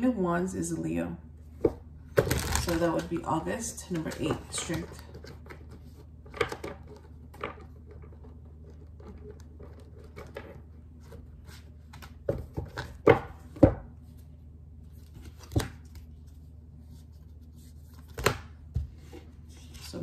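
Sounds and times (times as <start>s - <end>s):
low steady hum: 0.0s - 20.0s
cards knocking on wooden table: 12.2s - 13.9s.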